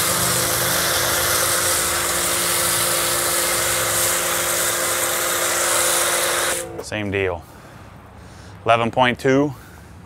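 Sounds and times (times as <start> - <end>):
foam spray hissing: 0.0 - 6.8
pressure washer motor humming: 0.0 - 7.0.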